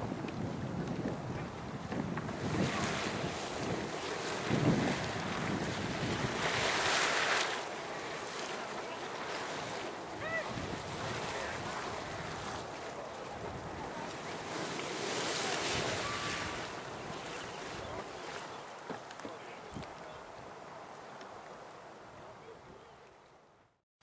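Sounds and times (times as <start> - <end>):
wind buffeting microphone: 0.0 - 7.5, 9.4 - 18.2
geyser water rushing: 0.3 - 20.5.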